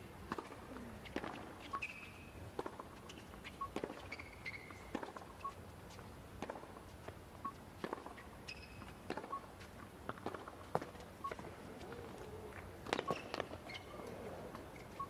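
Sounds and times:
tennis ball bouncing on hard court: 0.3 - 5.4, 6.4 - 6.8, 7.8 - 12.0, 12.8 - 14.8.

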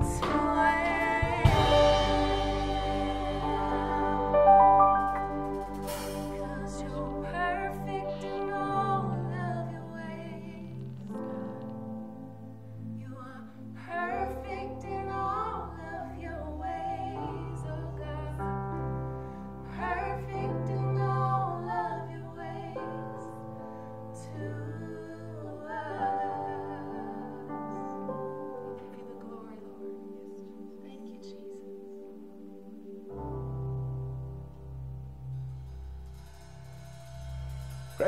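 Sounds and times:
women singing with vibrato: 0.0 - 11.6, 12.9 - 33.3
long held low notes: 0.0 - 11.7.

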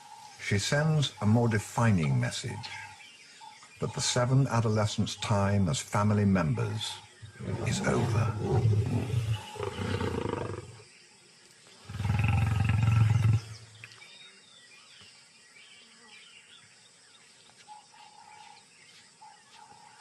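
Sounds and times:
lioness growling: 7.3 - 10.8, 11.8 - 13.6.

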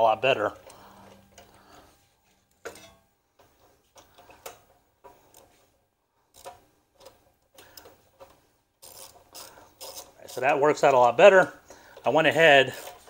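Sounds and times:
metal parts clicking and clinking: 2.6 - 3.0, 6.3 - 11.2.

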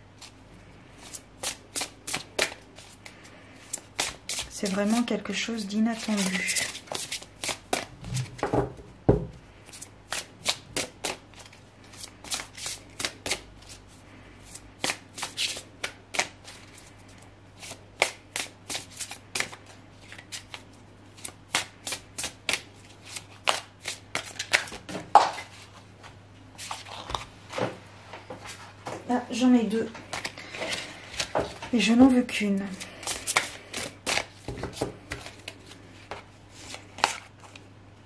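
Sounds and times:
cards being shuffled: 1.0 - 5.1, 5.9 - 8.5, 21.2 - 25.6, 30.1 - 31.7, 32.7 - 37.7.

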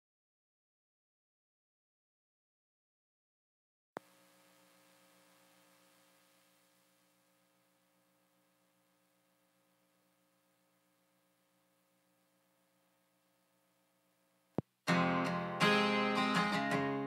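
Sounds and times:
faint multi-tone hum: 4.0 - 14.8.

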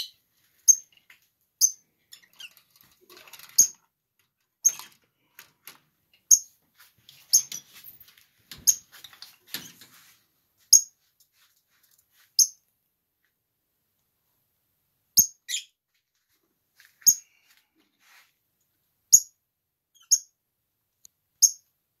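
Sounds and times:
lovebirds chirping: 15.2 - 15.8, 21.4 - 21.6.

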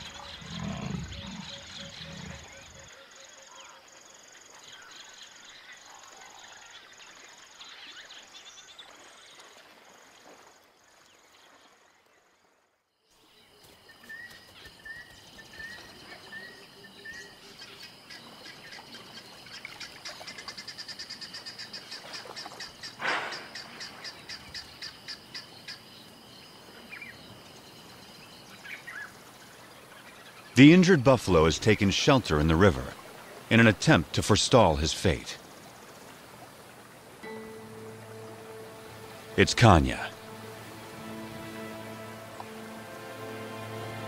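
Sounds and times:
bird chirping: 0.0 - 3.8.

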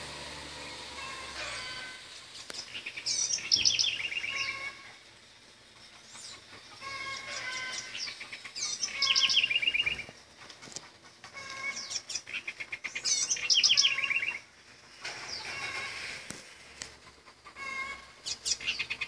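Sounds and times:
songbird singing: 0.0 - 10.3, 11.3 - 16.1, 17.6 - 19.0.

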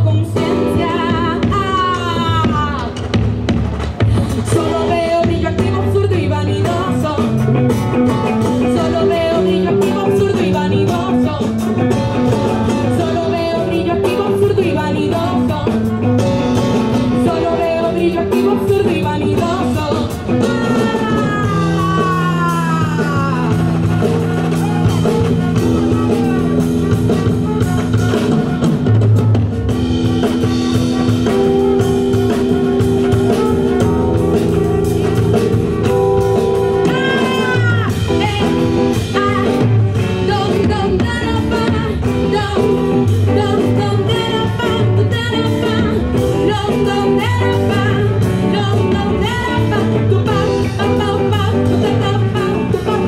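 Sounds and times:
live band music with singing: 0.0 - 53.0.

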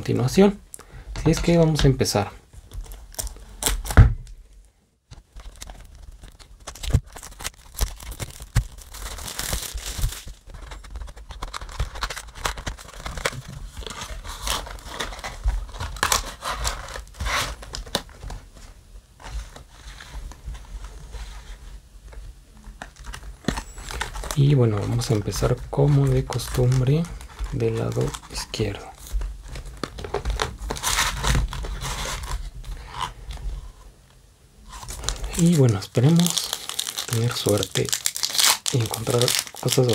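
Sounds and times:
shrink wrap tearing and crinkling: 2.7 - 4.0, 5.2 - 18.3, 22.7 - 33.2, 34.7 - 39.9
foil packs rustling: 5.2 - 18.6, 23.0 - 33.2, 34.7 - 39.9.

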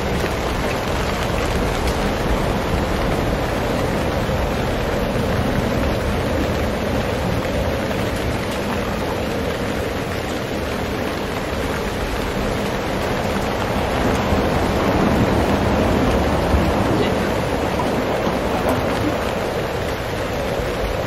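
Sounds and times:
rain on tarps: 0.0 - 21.0
wind buffeting microphone: 0.0 - 21.0.

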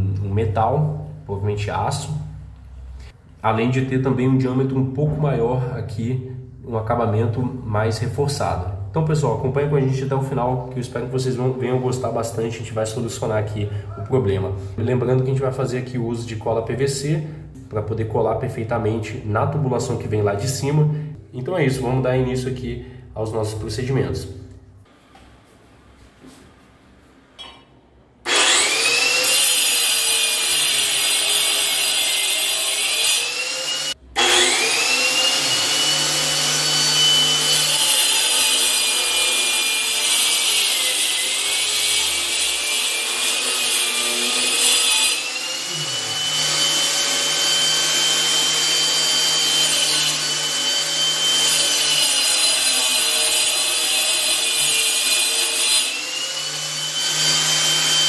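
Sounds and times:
angle grinder cutting into tile: 28.2 - 58.0.

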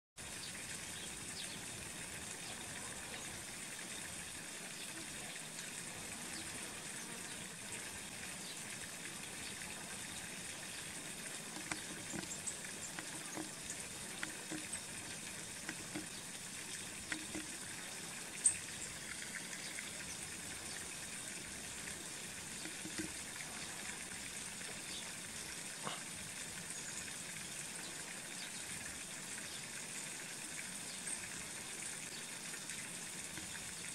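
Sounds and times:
running water rushing: 0.2 - 33.9
faint clicks: 11.3 - 17.9.

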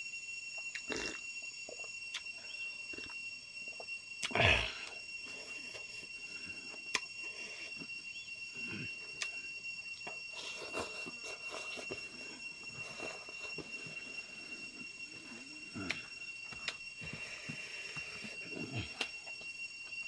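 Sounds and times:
high-pitched whine: 0.0 - 20.0
man chewing and lip smacking: 0.6 - 2.3, 3.0 - 3.2, 6.9 - 7.1, 9.2 - 9.4.

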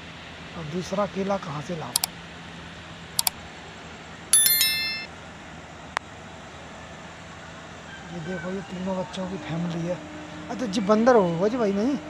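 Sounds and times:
bright bell ding: 4.4 - 5.1.

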